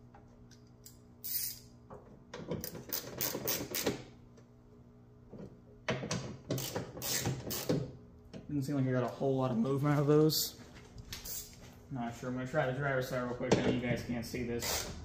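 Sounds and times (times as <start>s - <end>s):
ratchet wrench clicking: 0.8s - 1.7s, 6.6s - 7.8s
steady low hum: 3.9s - 15.0s.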